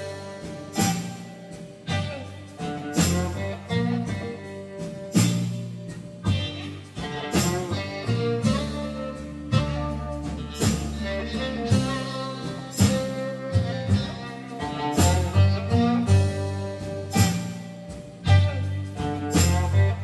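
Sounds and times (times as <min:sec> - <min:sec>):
instrumental background music: 0:00.0 - 0:20.0.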